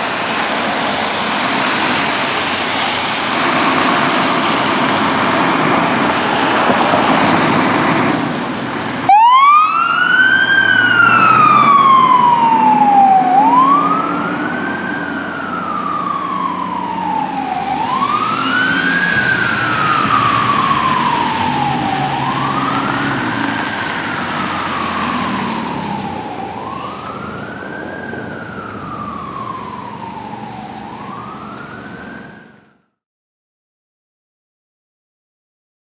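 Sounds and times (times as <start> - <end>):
fire engine rumbling: 0.0 - 32.8
siren wailing: 9.0 - 32.9.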